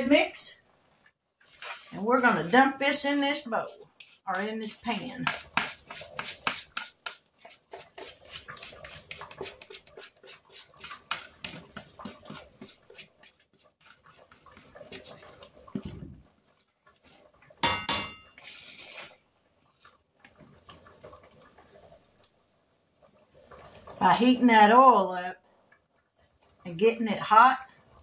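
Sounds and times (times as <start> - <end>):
spoon stirring batter in bowl: 1.4 - 21.2.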